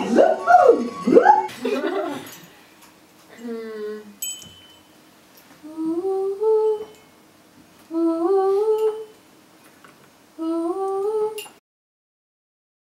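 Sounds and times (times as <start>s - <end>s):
high voice humming: 3.3s - 4.2s, 5.6s - 7.0s, 7.9s - 9.2s, 10.4s - 11.5s.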